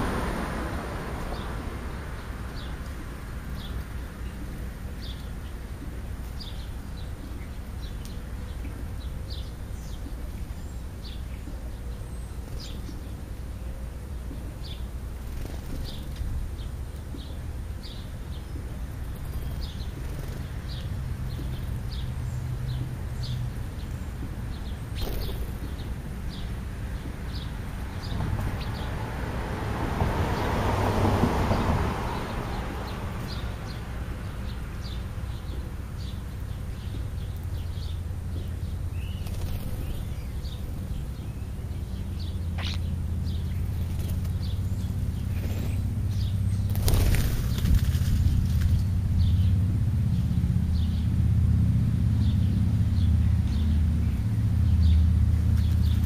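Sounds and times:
passing vehicle: 0.0s - 4.4s, 19.0s - 56.0s
high bird chirps: 42.5s - 43.7s.

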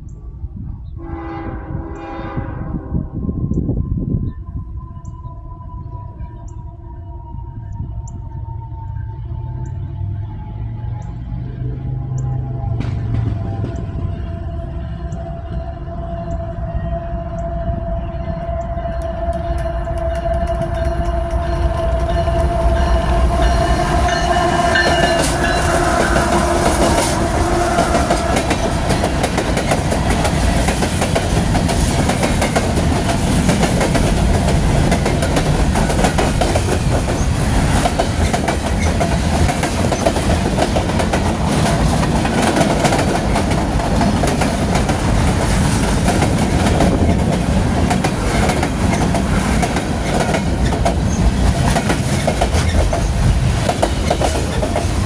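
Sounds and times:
locomotive pitched tone: 0.0s - 55.0s
train wheels clacking on rails: 18.9s - 55.0s.

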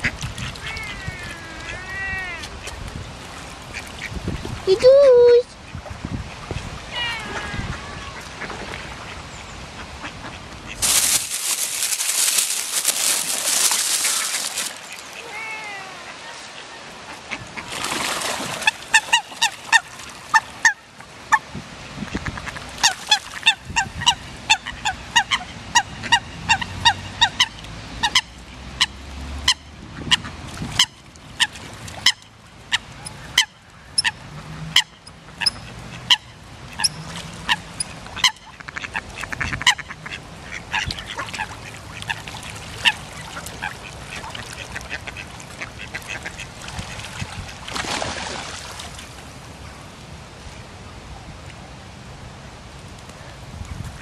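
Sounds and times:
ducks and coots calling: 0.0s - 4.9s, 18.5s - 21.5s, 22.1s - 47.6s.

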